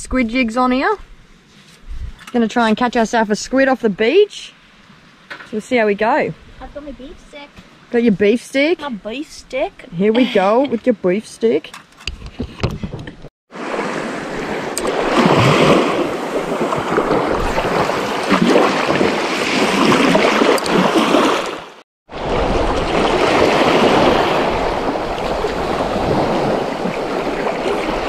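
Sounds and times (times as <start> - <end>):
small waves breaking on shore: 13.5 - 28.0.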